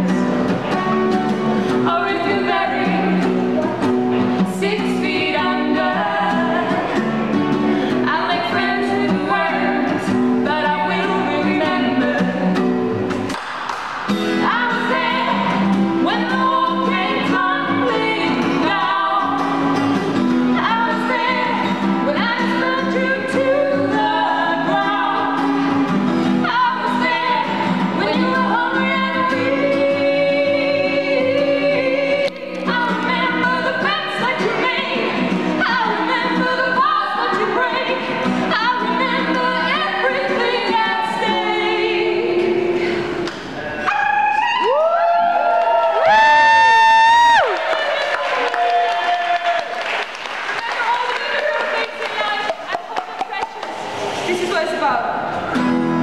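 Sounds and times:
strummed acoustic guitar: 0.0 - 43.8, 55.2 - 56.0
women singing together: 1.7 - 12.7, 14.4 - 19.8, 20.5 - 44.7.

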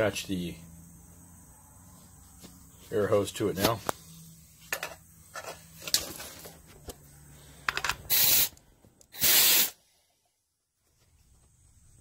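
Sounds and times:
short bursts of air hissing: 8.0 - 10.0.

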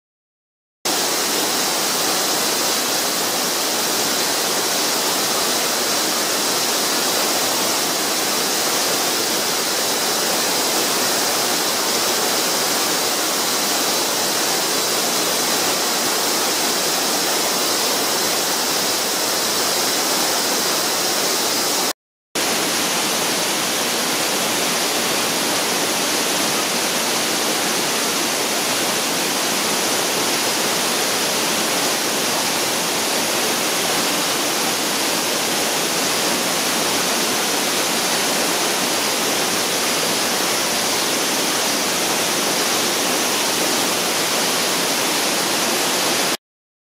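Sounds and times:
waterfall rushing: 0.9 - 46.4.

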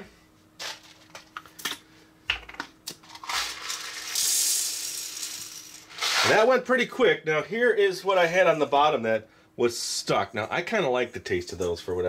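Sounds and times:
popcorn kernels pouring into plastic cup: 3.0 - 6.3.

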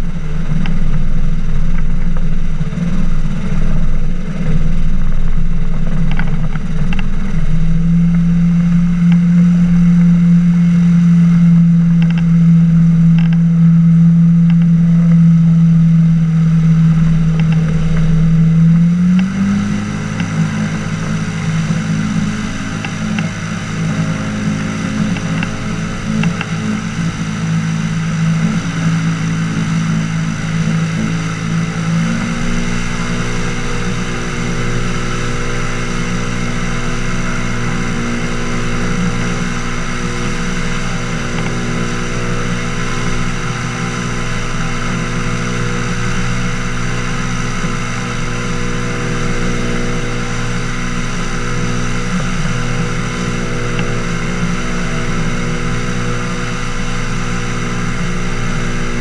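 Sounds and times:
boat engine and propeller: 0.0 - 59.0
water and wind hiss: 0.0 - 59.0.

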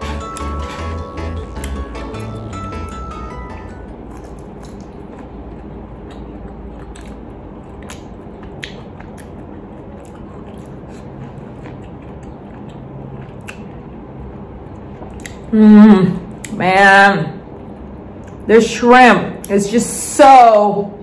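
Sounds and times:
close-up chewing: 4.1 - 15.5
wet mouth clicks: 7.8 - 9.3, 12.2 - 13.7.

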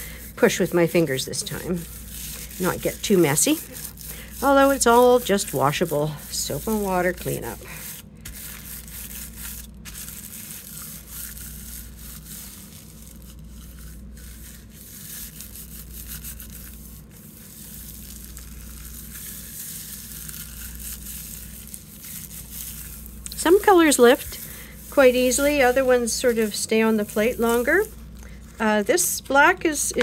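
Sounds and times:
low steady hum: 0.0 - 30.0
tissue paper rustling: 0.0 - 30.0.

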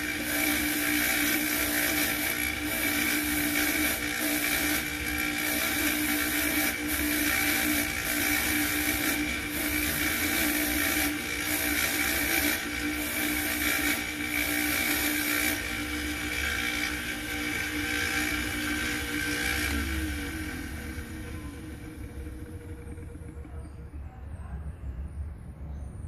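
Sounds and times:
coin rasping on polishing wheel: 0.0 - 21.6
polishing motor humming: 0.0 - 24.0.

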